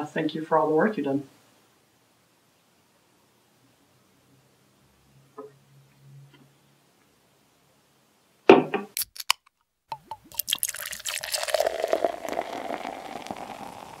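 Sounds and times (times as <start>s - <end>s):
liquid dripping: 10.0s - 14.0s
liquid pouring and fizzing: 10.2s - 14.0s.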